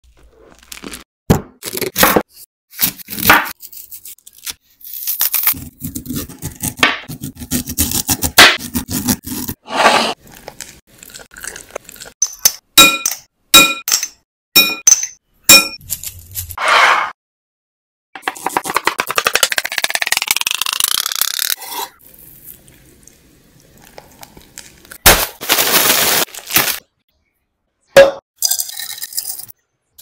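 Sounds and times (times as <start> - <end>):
potatoes scraping and crunching: 0.0 - 1.1, 2.7 - 12.1, 15.8 - 16.6, 23.8 - 26.8.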